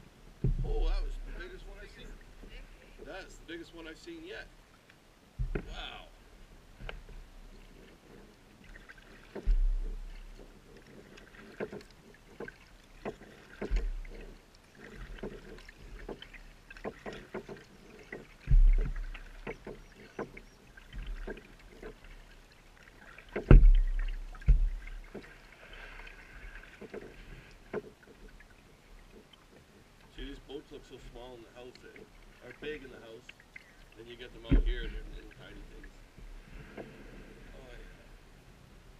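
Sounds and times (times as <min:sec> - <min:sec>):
kayak paddle splashing: 0:00.0 - 0:38.3
heavy low thumps: 0:00.4 - 0:01.3, 0:05.4 - 0:05.9, 0:09.5 - 0:10.1, 0:18.5 - 0:19.2, 0:23.5 - 0:25.0, 0:34.5 - 0:35.1
water dripping: 0:06.8 - 0:36.0.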